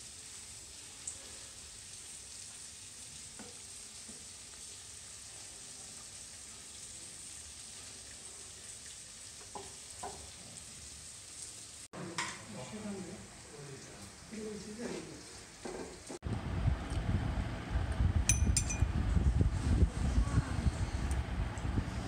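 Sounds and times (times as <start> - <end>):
food sizzling in a pan: 0.0 - 16.2.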